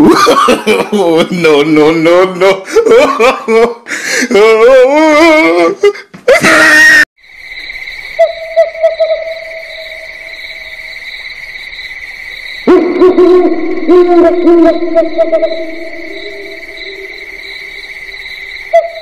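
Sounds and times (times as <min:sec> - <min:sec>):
high insect drone: 0:07.2 - 0:19.0
high wavering voice-like wail: 0:12.7 - 0:17.8.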